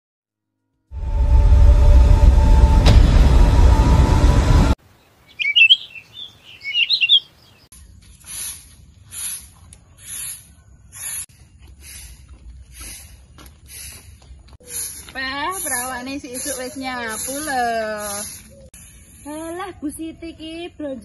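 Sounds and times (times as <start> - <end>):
birds chirping: 4.8 - 20.8
broom sweeping pavement: 7.7 - 19.7.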